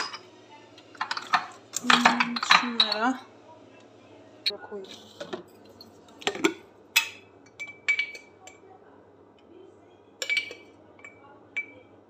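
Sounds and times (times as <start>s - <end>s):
cups clinking on stone countertop: 0.0s - 0.3s, 0.9s - 3.2s, 5.2s - 8.6s, 10.2s - 11.9s.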